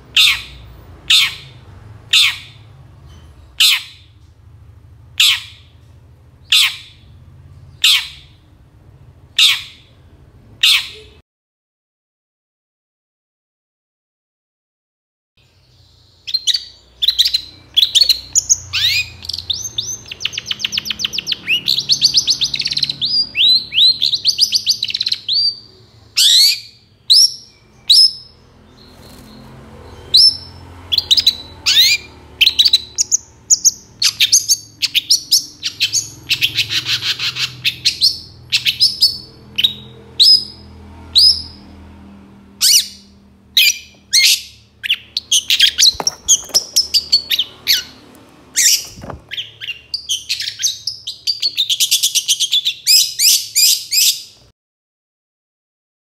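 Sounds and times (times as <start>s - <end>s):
bird calling with sharp notes: 0.0s - 4.2s, 5.2s - 5.8s, 6.4s - 8.5s, 9.4s - 11.2s, 15.5s - 41.6s, 42.6s - 54.4s
bird rattling trills: 45.4s - 48.0s.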